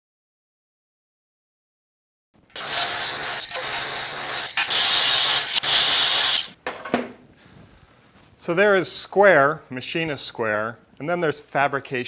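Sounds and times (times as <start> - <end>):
cut-off wheel grinding steel: 2.6 - 6.6.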